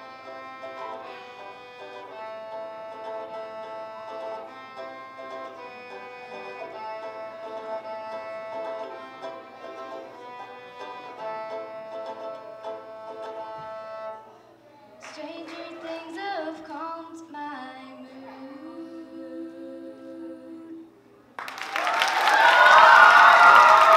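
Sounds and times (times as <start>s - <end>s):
violin and banjo tune: 0.0s - 14.4s
audience cheering and applause: 21.4s - 23.9s.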